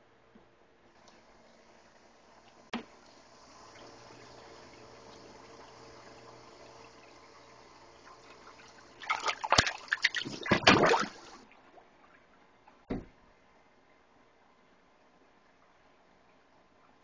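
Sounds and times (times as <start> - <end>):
water splashing and sloshing: 8.0 - 12.9.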